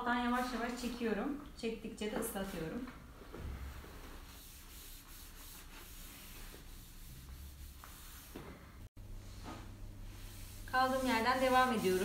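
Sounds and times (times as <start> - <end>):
cloth rubbing over vinyl film: 3.8 - 8.4, 10.0 - 12.0.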